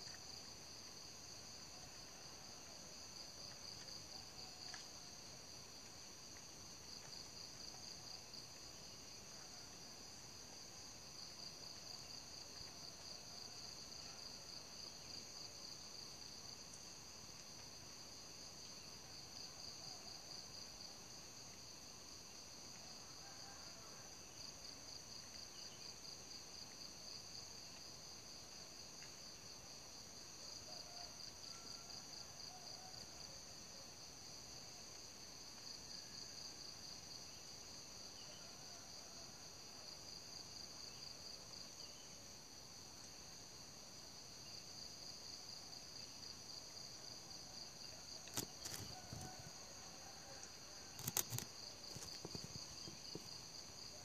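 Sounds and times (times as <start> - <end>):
night insects trilling: 30.2 - 54.0.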